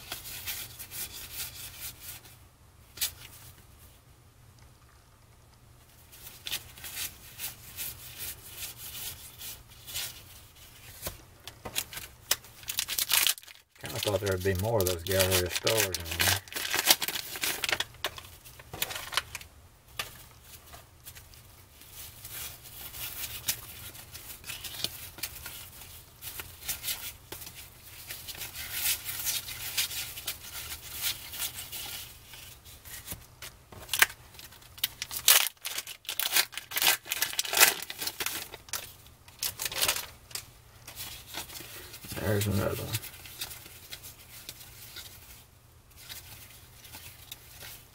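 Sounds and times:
cards being flipped through: 10.8 - 20.3.

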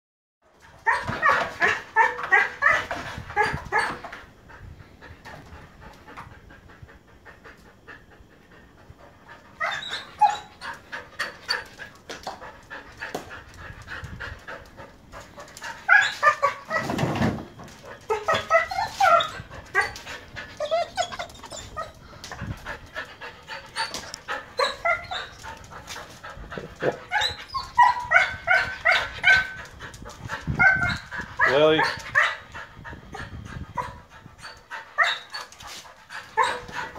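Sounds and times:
dog whining and yipping: 0.8 - 4.1, 9.5 - 11.9, 15.4 - 17.0, 17.6 - 29.8, 30.5 - 32.5, 33.1 - 36.9.

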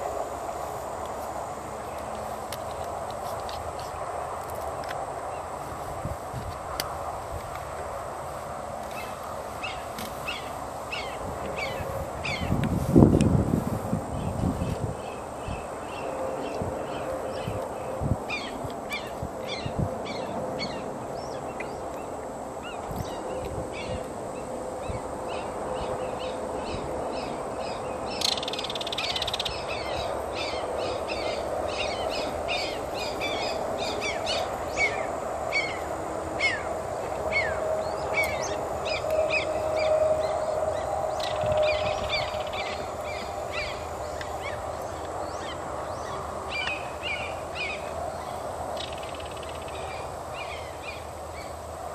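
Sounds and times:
outdoor background hum: 0.0 - 51.9
birds chirping: 8.8 - 12.6, 14.1 - 51.6.

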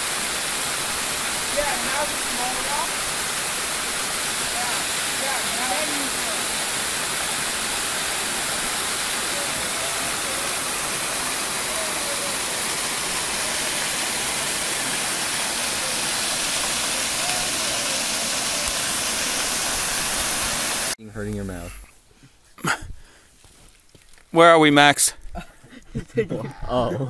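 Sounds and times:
waterfall rushing: 0.0 - 21.0.

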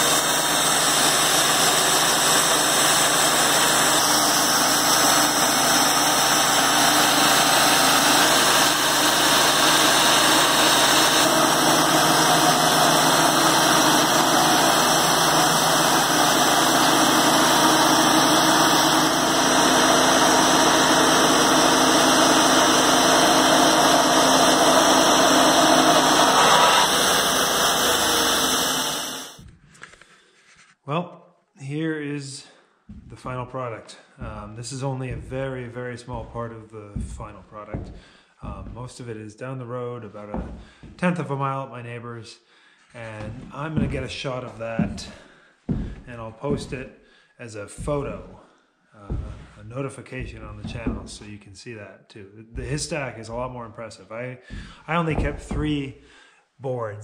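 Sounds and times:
sawmill engine running: 0.0 - 29.4, 34.2 - 39.0, 40.3 - 41.0, 43.1 - 46.9, 47.8 - 48.4, 49.1 - 51.3.

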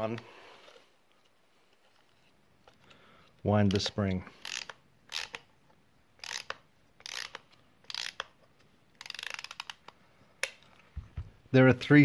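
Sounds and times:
camera winding key ratcheting clicks: 4.4 - 5.5, 6.2 - 8.4, 9.0 - 10.6.

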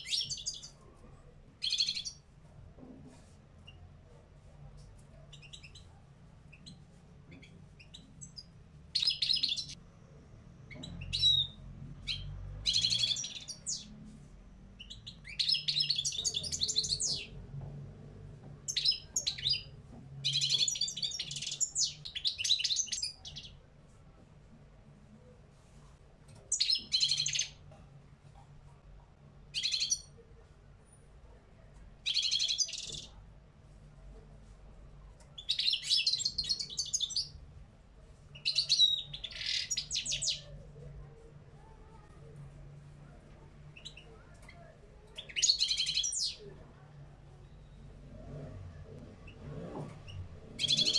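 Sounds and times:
goldfinch singing: 7.4 - 9.8, 18.7 - 23.5, 38.4 - 40.6, 50.6 - 50.9.

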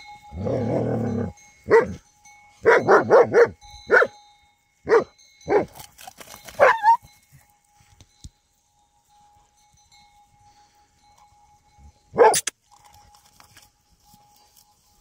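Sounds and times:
dogs barking: 1.7 - 2.0, 2.6 - 4.2, 4.9 - 5.8, 6.6 - 7.0, 12.1 - 12.5
dog yelp: 6.6 - 7.0, 12.1 - 12.5.

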